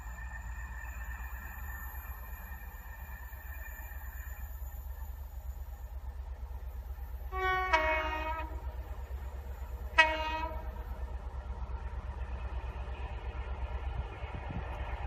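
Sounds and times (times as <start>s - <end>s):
two-tone train horn: 7.3s - 8.7s, 9.9s - 10.8s.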